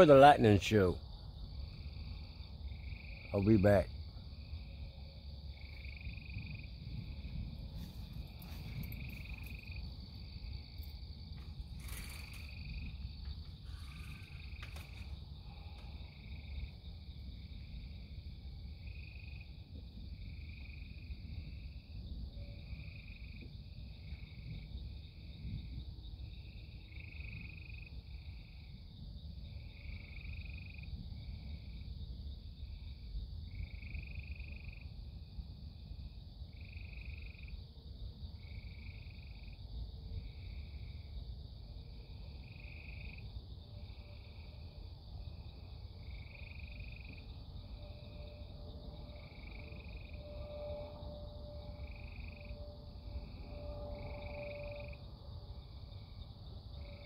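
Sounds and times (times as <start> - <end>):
frogs trilling: 51.8 - 55.0.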